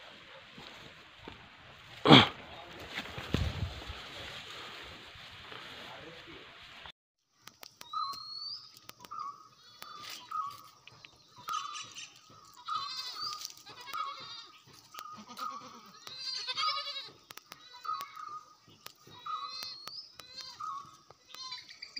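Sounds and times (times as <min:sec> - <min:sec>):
goats bleating: 0:11.4 - 0:21.8.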